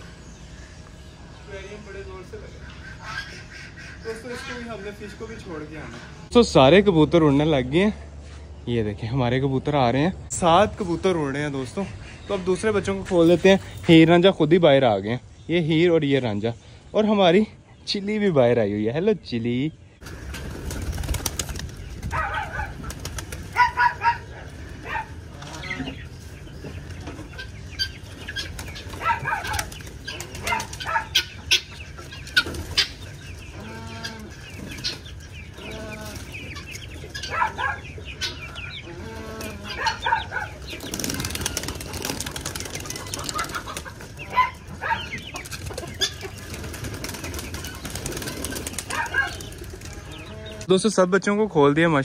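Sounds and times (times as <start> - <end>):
chickens clucking: 0.0 - 52.0
wings flapping: 20.0 - 24.2, 28.2 - 31.6, 40.6 - 44.2, 45.3 - 50.2.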